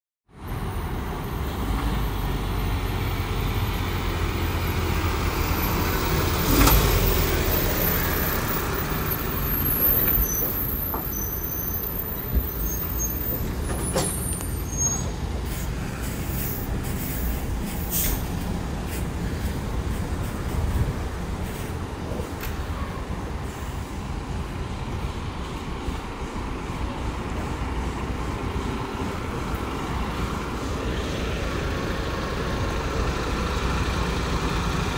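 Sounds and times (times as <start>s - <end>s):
heavy truck diesel engines rumbling: 0.3s - 34.9s
tyre noise: 5.5s - 23.2s.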